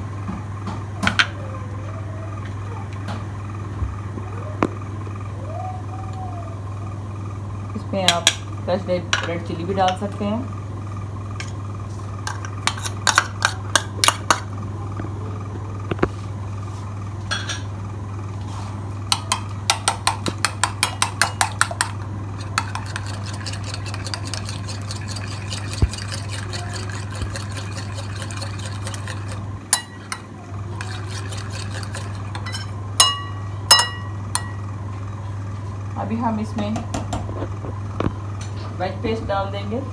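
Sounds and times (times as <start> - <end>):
steady low hum: 0.0 - 39.9
whisk clinking in glass bowl: 20.7 - 30.2, 30.8 - 34.6.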